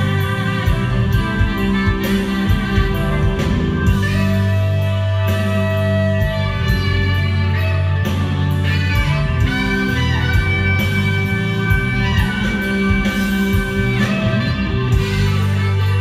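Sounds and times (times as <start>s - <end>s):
live rock band playing: 0.0s - 16.0s.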